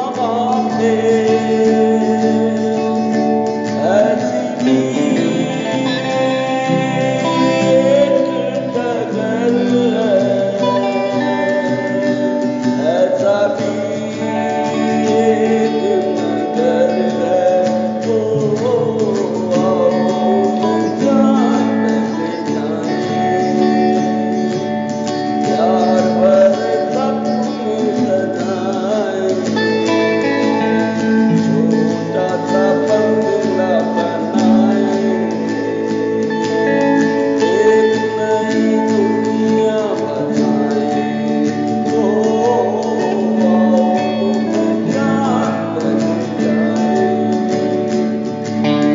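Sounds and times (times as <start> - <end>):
acoustic rhythm guitar: 0.0 - 48.9
person singing: 0.0 - 48.9.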